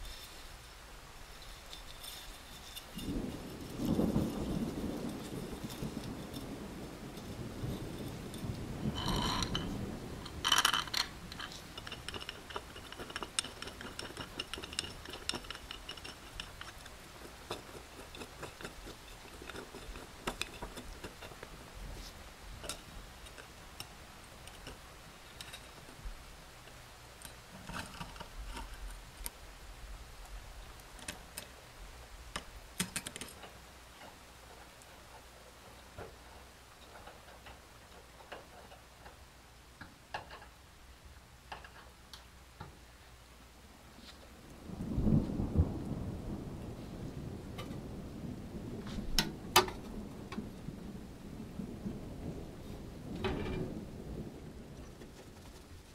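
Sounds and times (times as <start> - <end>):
wrench turning metal nuts: 10.3 - 21.4.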